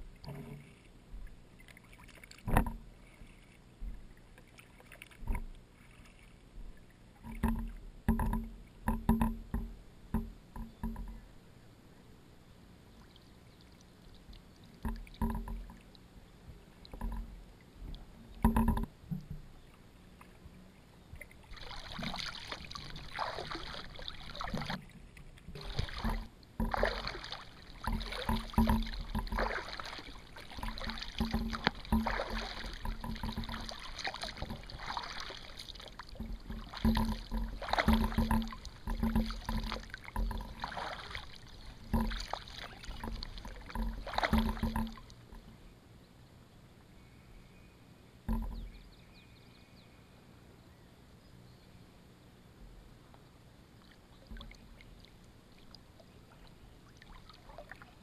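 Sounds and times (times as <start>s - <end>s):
paddle splashing water: 0.0s - 11.4s, 12.9s - 45.7s, 48.3s - 49.1s, 53.1s - 58.0s
sharp knocks: 25.6s - 35.4s, 36.1s - 45.0s, 48.3s - 48.8s.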